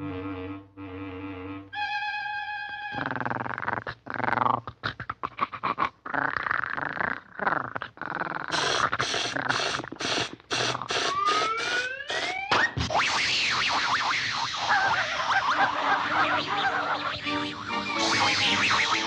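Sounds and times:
cartoon puppy growling: 2.9 - 19.0
short air spurts: 8.5 - 12.4
rising whistle: 11.1 - 19.0.

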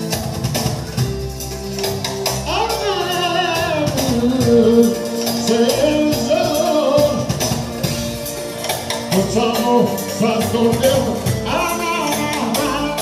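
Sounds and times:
electronic keyboard: 0.0 - 13.0
programmed percussion beat: 0.0 - 13.0
man singing through microphone: 2.4 - 7.8, 9.1 - 13.0.

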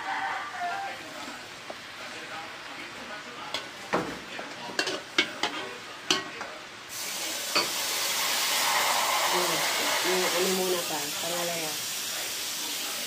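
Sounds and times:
steady hiss: 6.9 - 13.0.

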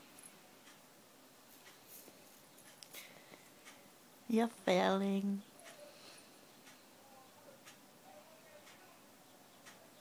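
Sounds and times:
faint ticks: 1.6 - 3.8.

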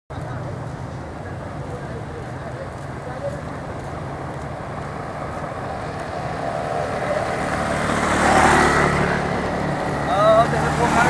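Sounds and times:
engine humming: 0.1 - 11.0
vehicle passing by: 0.4 - 11.0.

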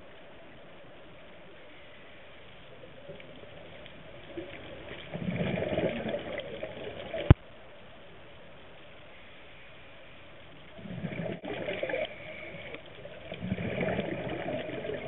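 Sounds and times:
underwater breath bubbles: 4.3 - 7.4, 10.7 - 15.0.

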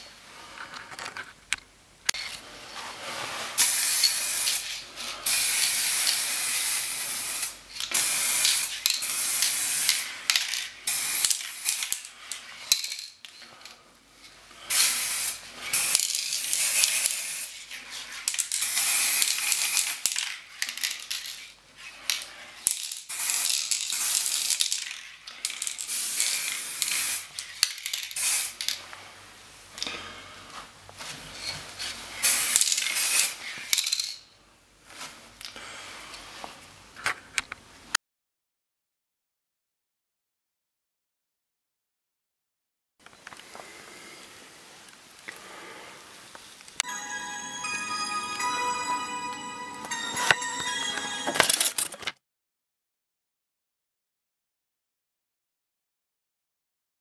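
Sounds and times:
spraying hiss: 3.5 - 10.1, 10.9 - 11.8, 14.7 - 17.6.

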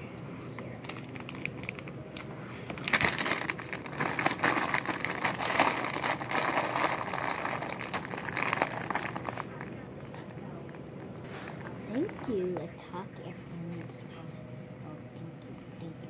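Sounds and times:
foil snack bag crinkling: 0.8 - 2.0, 2.7 - 10.3.

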